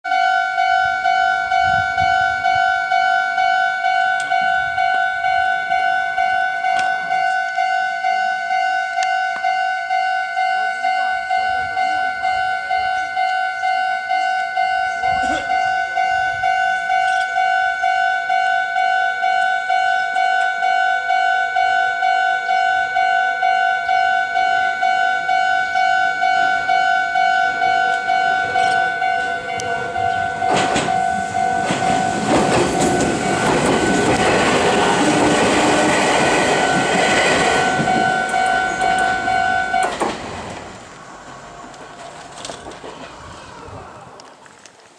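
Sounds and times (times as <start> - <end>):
level-crossing alarm ringing: 0.1 - 40.1
train wheels rumbling and clattering: 27.4 - 44.4.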